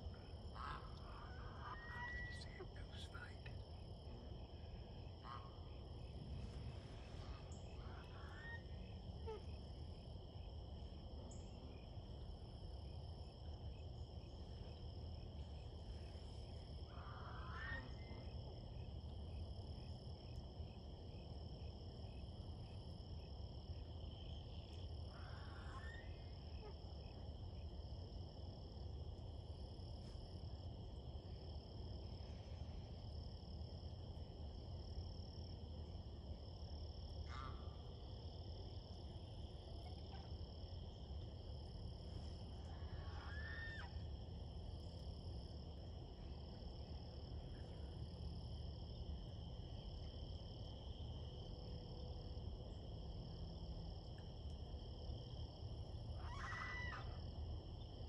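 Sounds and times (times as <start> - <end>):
frogs trilling chorus: 0.0 - 51.9, 52.5 - 58.0
frog rising calls: 42.6 - 44.1, 56.1 - 57.2.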